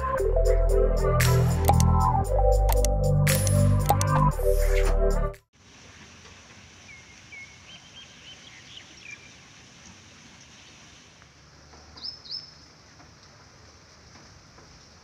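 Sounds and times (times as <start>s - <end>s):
steady outdoor hiss: 5.5s - 15.0s
birds chirping: 6.9s - 10.8s, 11.7s - 12.7s.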